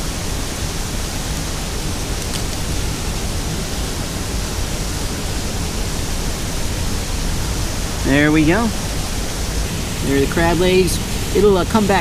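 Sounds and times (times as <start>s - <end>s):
gas stove burner hissing: 8.0s - 12.0s.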